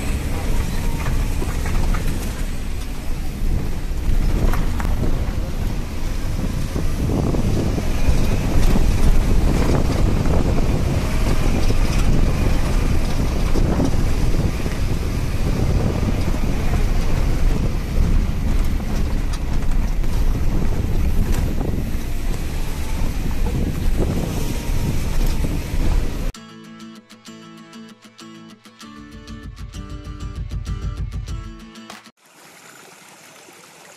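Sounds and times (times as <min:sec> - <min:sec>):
wind buffeting microphone: 0:00.0 - 0:26.4.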